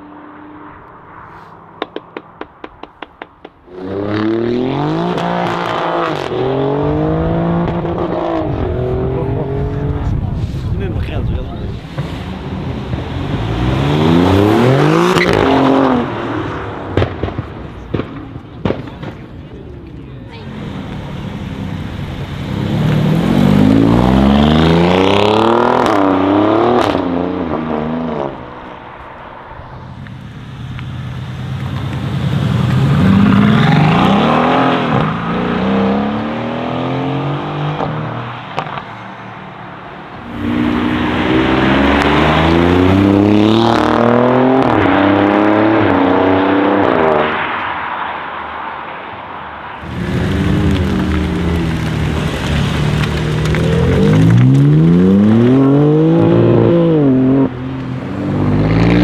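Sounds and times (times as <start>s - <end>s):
car engine accelerating hard: 40.2s - 47.3s.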